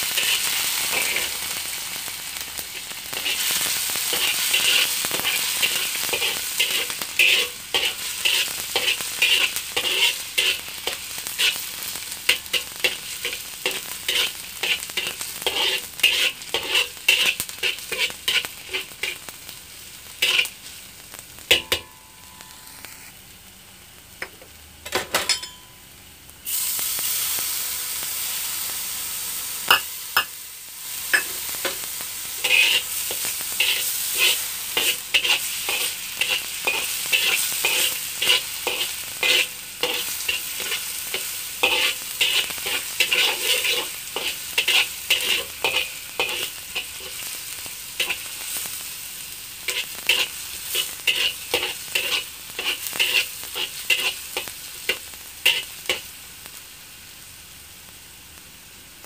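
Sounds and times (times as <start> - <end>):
garlic sizzling in hot oil: 0.0 - 24.6, 25.9 - 59.0
metal spatula scraping a wok: 0.1 - 1.5, 2.6 - 19.3, 20.2 - 20.6, 21.5 - 22.8, 31.1 - 48.8, 49.6 - 56.1.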